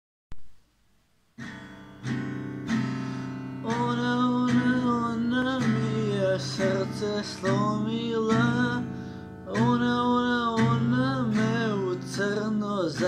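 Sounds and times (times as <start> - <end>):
acoustic guitar strumming chords: 1.3 - 13.0
man singing: 3.6 - 13.0.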